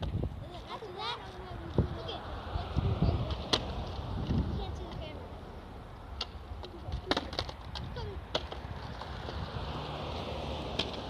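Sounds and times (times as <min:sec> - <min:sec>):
skateboard clacking on pavement: 0:03.2 - 0:05.1, 0:06.2 - 0:09.4, 0:10.7 - 0:11.0
car driving past: 0:08.7 - 0:11.0.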